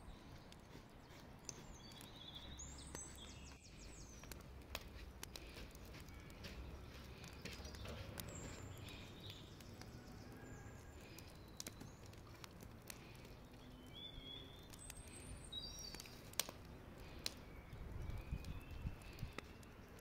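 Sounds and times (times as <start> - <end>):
bird chirps: 0.0 - 20.0.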